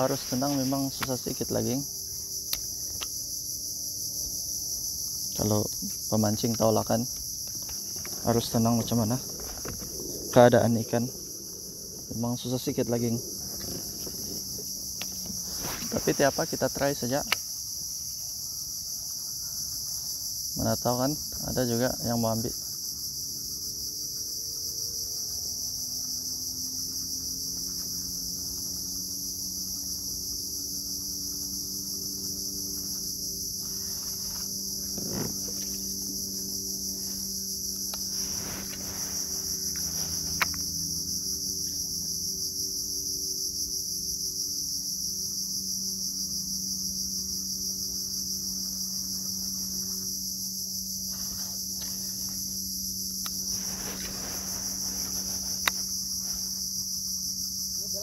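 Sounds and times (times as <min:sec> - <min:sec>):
faint low hum: 0:00.0 - 0:17.1
insects buzzing: 0:00.0 - 0:58.0.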